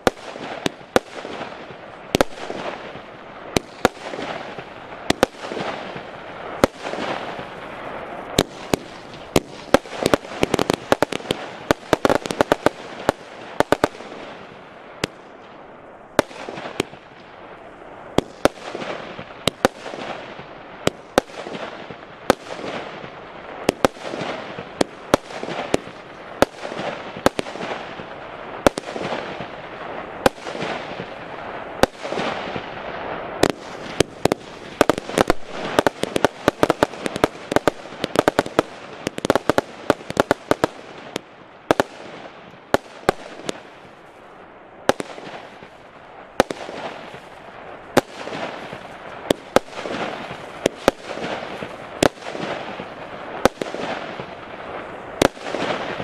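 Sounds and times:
firework hiss: 0.0 - 15.2, 23.6 - 43.9
firework shots firing: 0.0 - 15.6, 16.2 - 17.4, 18.2 - 44.0, 44.9 - 56.0.

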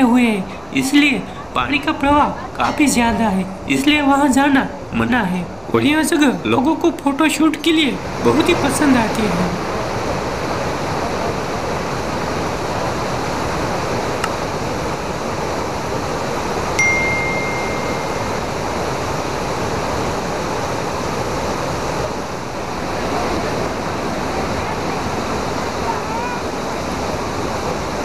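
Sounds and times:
waterfall rushing over rock: 0.0 - 28.0
ringing chime sound effect: 16.8 - 18.6.

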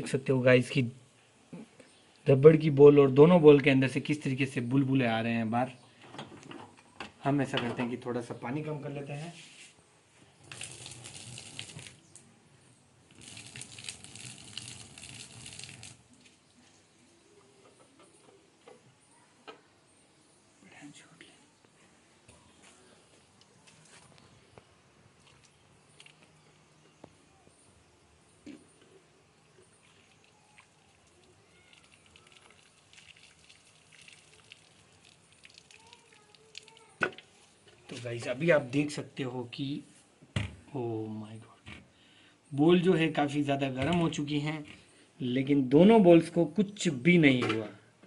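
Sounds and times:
water splashing onto ground: 10.4 - 12.2, 13.1 - 16.2, 29.8 - 37.2.

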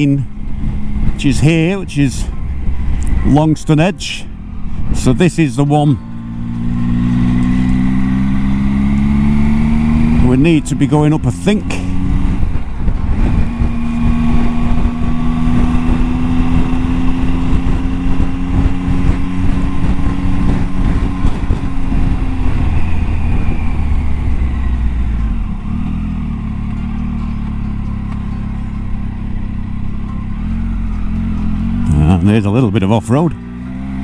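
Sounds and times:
wind buffeting microphone: 0.0 - 27.0
motorcycle engine cruising: 0.0 - 34.0.

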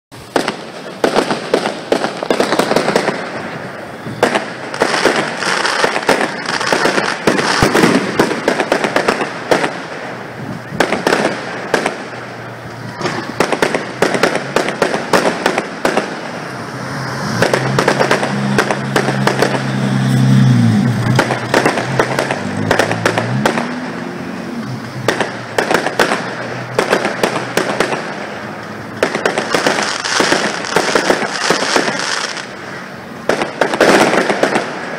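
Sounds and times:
fireworks bangs and crackling: 0.1 - 34.9.

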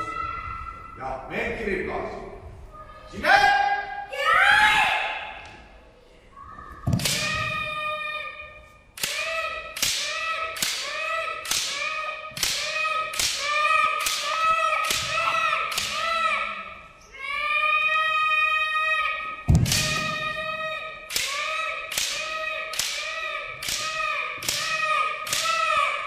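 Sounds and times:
child shouting: 0.0 - 1.0, 2.8 - 5.4, 6.4 - 26.0.

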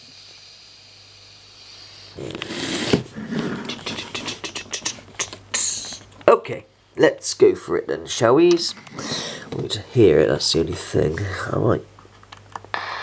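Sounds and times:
radio static hiss: 1.5 - 6.1, 12.7 - 13.0.

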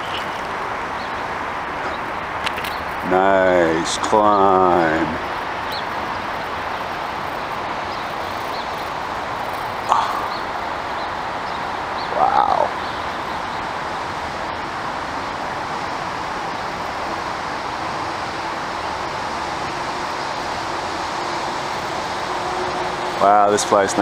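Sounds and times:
rushing background noise: 0.0 - 24.0
harsh bird call: 9.8 - 13.6.

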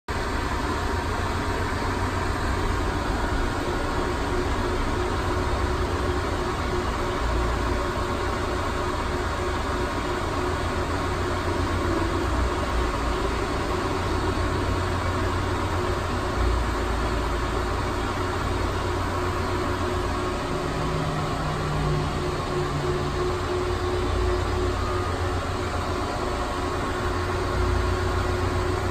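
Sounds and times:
mechanical hum: 0.1 - 28.9
faint steady tones: 0.2 - 28.9.

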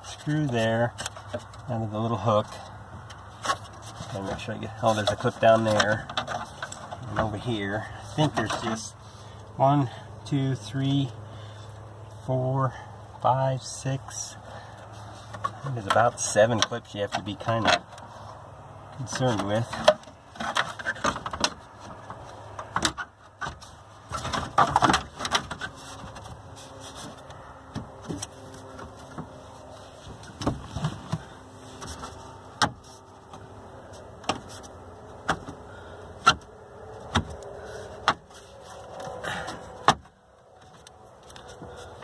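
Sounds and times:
plastic rubbing and rustling: 19.1 - 34.8.

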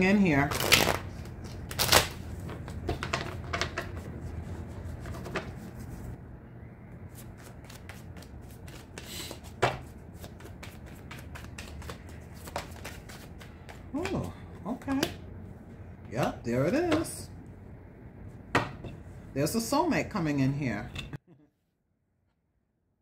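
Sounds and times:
cards being shuffled by hand: 0.5 - 6.2, 7.1 - 14.3.

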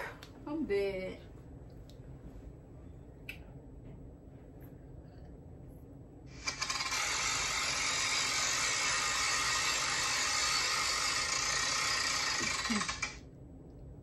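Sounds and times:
game spinner clicking rapidly: 6.4 - 13.2.

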